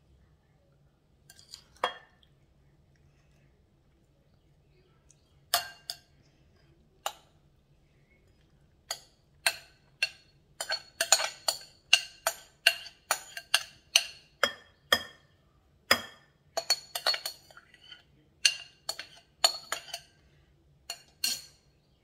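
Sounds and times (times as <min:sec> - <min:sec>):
spoon clinking glass bowl: 0:05.5 - 0:06.1, 0:08.9 - 0:15.2, 0:15.9 - 0:20.2, 0:20.9 - 0:21.6.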